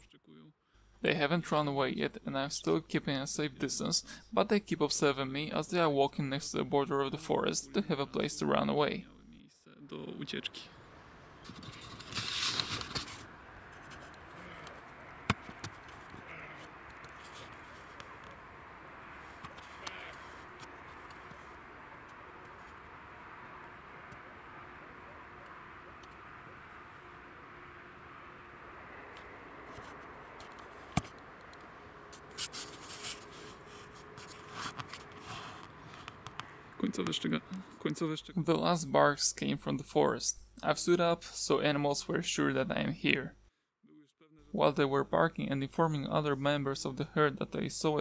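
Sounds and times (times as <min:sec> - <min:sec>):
camera handling noise: 0:11.4 - 0:14.2, 0:29.1 - 0:36.5
clothing rustling: 0:32.1 - 0:36.2.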